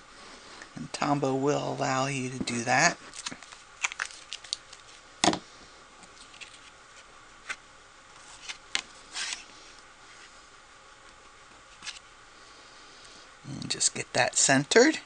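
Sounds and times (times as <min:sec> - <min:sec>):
paper sliding: 0:08.2 - 0:10.3.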